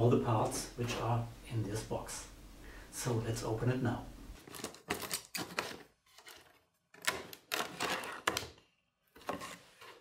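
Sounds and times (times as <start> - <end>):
packing tape tearing off box: 4.4 - 8.5.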